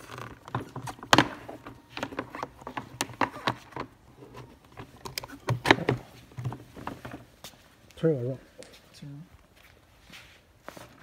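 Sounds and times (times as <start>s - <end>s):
plastic trays clicking and knocking: 0.3s - 4.0s, 4.7s - 7.2s.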